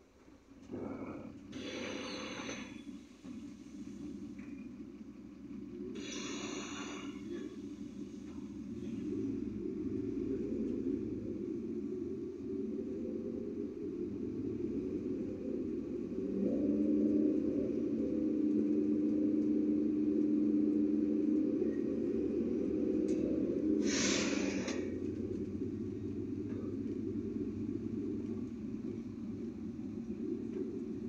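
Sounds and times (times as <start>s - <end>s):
engine drone: 0.0s - 31.0s
vehicle road rumble: 0.0s - 31.0s
short hiss: 23.8s - 24.8s.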